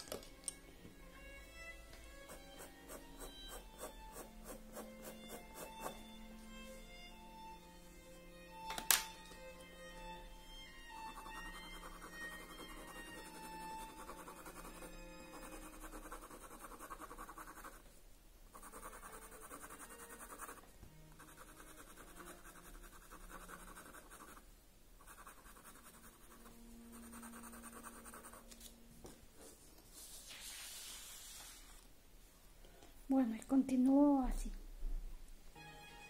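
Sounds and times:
pencil scratching on paper: 2.2s - 6.0s, 11.1s - 17.8s, 18.5s - 24.4s, 25.0s - 28.4s
paper rustle: 29.6s - 31.8s.

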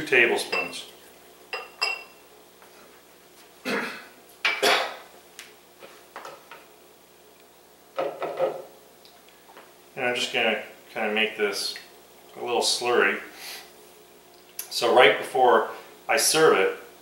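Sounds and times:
glass clink: 0.5s - 0.8s, 1.5s - 2.2s
dishes clattering: 8.0s - 8.7s.

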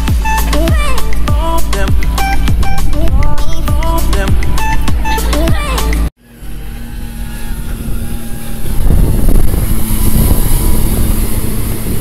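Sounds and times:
motorboat and jet ski engines: 0.0s - 12.0s
water churning: 3.4s - 12.0s.

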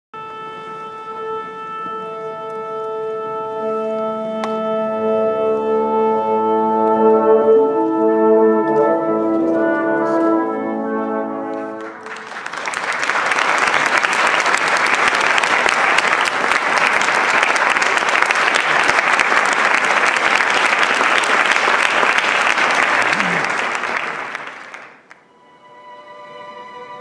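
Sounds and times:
orchestra holding chords: 0.2s - 12.5s, 13.9s - 27.0s
audience applause: 11.5s - 25.2s.

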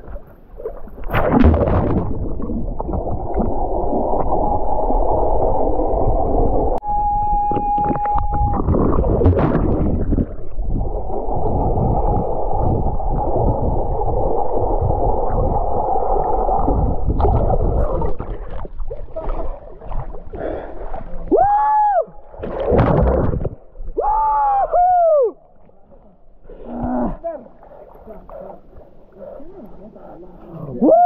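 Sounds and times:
water splashing: 0.0s - 6.8s, 7.4s - 21.4s, 22.1s - 24.1s
muffled underwater rush and bubbles: 0.0s - 24.2s.

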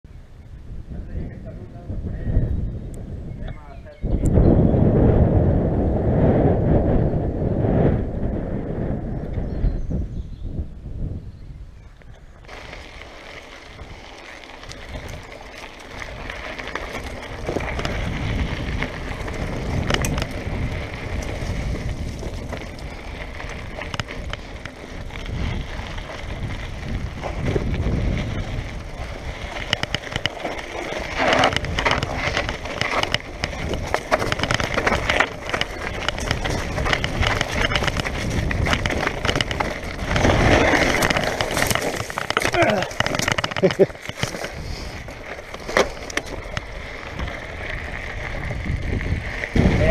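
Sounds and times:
tyres crunching on gravel: 12.4s - 49.9s
bike rattling and knocking: 12.5s - 49.9s.

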